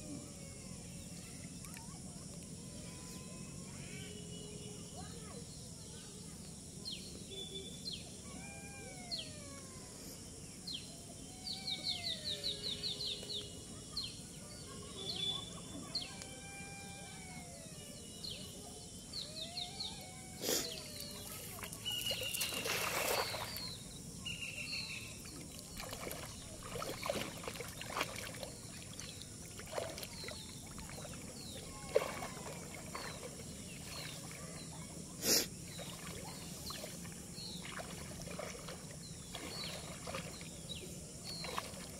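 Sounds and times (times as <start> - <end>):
birds calling: 19.2 - 41.9
small splashes: 21.0 - 23.8, 25.2 - 41.9
cast net hitting water: 22.3 - 23.5, 31.9 - 33.3.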